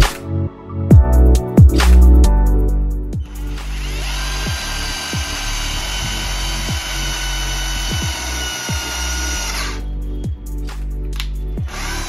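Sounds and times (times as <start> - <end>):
cordless drill boring into wood: 3.3 - 9.8, 11.7 - 12.0.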